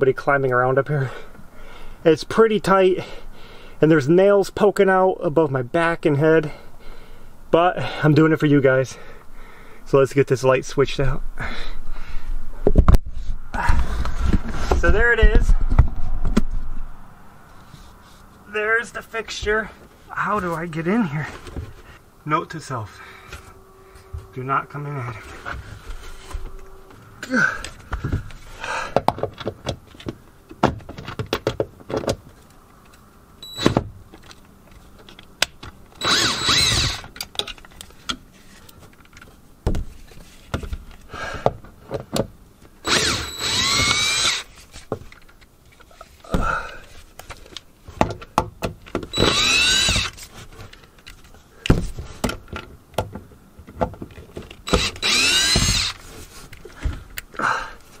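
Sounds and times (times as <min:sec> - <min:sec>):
knocks and clicks of handling: 0:27.6 - 0:33.0, 0:37.1 - 0:42.8, 0:47.1 - 0:49.2, 0:49.8 - 0:54.9
cordless drill whirring: 0:33.4 - 0:33.8, 0:36.0 - 0:37.1, 0:42.8 - 0:44.5, 0:49.1 - 0:50.2, 0:54.7 - 0:56.0.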